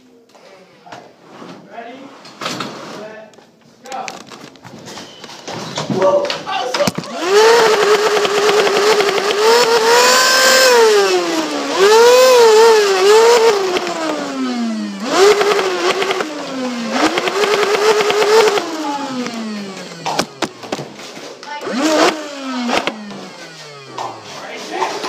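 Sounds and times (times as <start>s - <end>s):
toy blaster motors whining: 6.9s - 20.5s
fast ticking: 7.2s - 10.3s.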